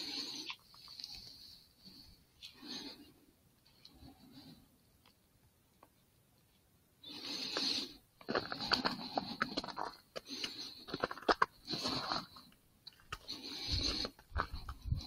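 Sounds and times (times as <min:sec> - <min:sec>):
beaver gnawing and chewing: 0:07.4 - 0:15.0.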